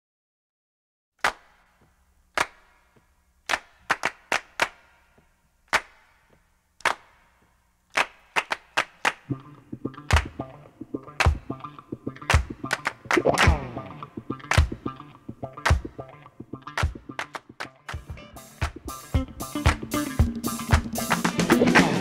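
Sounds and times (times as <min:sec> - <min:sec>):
sharp percussive claps or snaps: 0:01.2 - 0:22.0
bass line and beat: 0:09.3 - 0:22.0.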